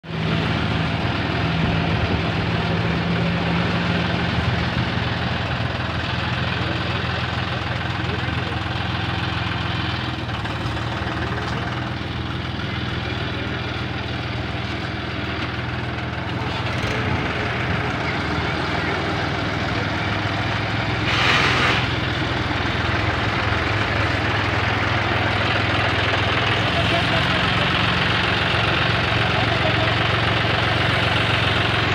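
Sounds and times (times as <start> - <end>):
tractor diesel engine running: 0.0 - 31.9
burst of hiss: 21.0 - 21.9.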